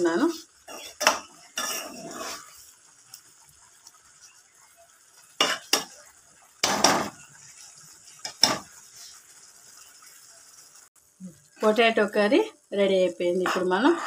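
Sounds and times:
spatula scraping pan: 0.3 - 2.8.

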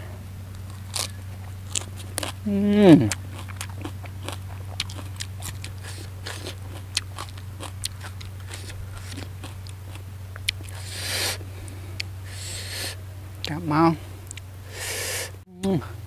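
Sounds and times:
low electrical hum: 0.0 - 16.0
wet chewing and crunching: 0.5 - 14.5
breath hiss: 10.7 - 13.0, 14.0 - 15.4.

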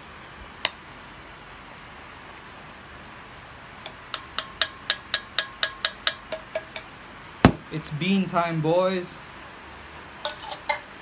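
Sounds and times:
room hiss: 0.0 - 11.0.

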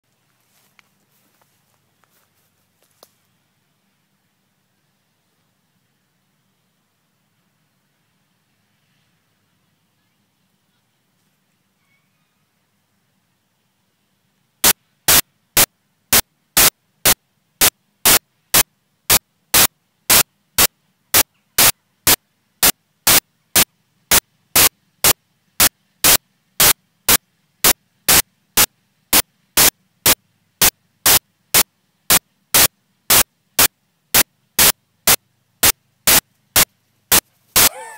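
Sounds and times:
short bursts of static: 14.6 - 37.9.

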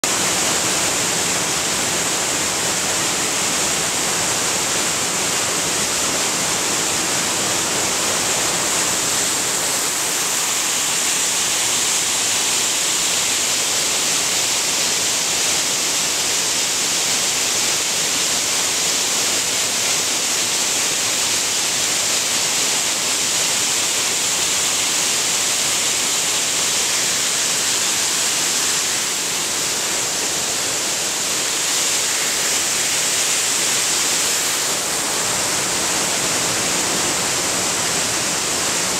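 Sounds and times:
waterfall rushing: 0.0 - 38.9.

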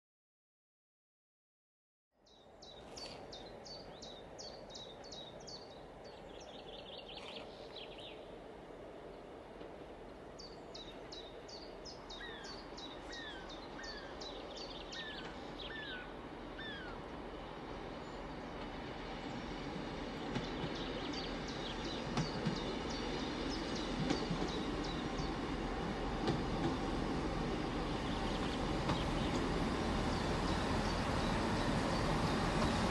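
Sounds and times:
train engine and wheel noise: 2.3 - 32.9
small birds chirping: 10.4 - 17.0, 18.0 - 25.5, 27.6 - 32.9.

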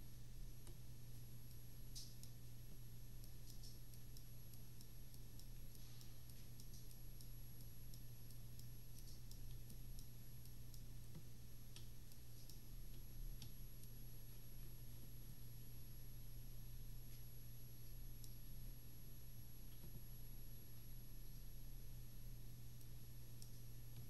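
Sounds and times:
low electrical hum: 0.0 - 24.0
faint sharp clicks: 3.2 - 14.0, 18.2 - 18.5.

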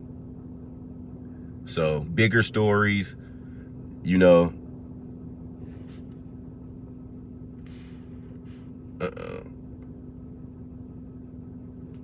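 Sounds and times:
car interior hum: 0.0 - 12.0
soft rustles: 5.6 - 6.4, 7.6 - 8.8
person burping: 9.0 - 9.6.

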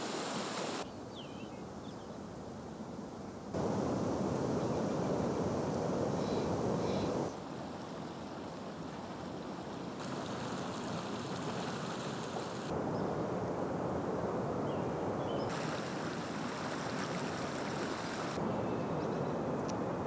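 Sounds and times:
waterfall rushing water: 0.0 - 0.8, 3.6 - 7.3, 15.5 - 18.4.

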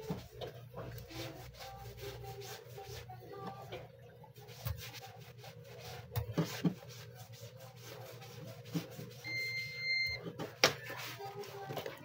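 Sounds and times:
high continuity beep: 9.2 - 10.2.

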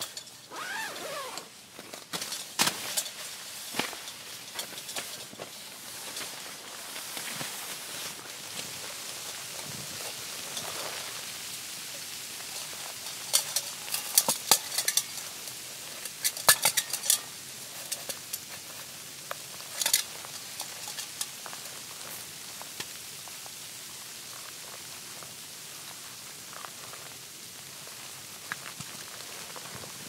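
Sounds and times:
steady hiss: 0.0 - 30.0
snow crunching by hand: 0.5 - 1.5.

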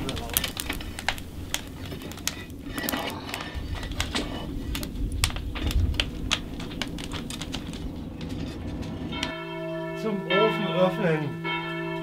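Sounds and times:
low rumble of fire: 0.0 - 9.6
wood fire crackling and popping: 0.0 - 10.0.

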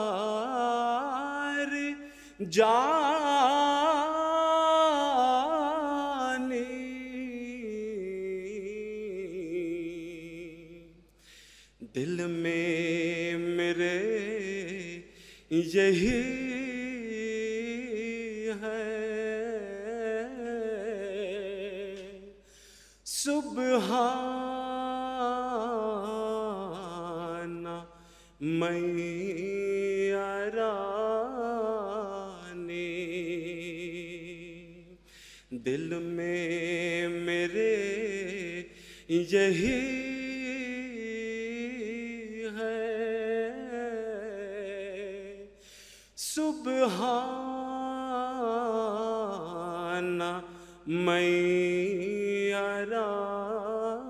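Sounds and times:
man chanting: 0.0 - 11.0, 11.8 - 22.4, 23.1 - 45.6, 46.2 - 54.0.

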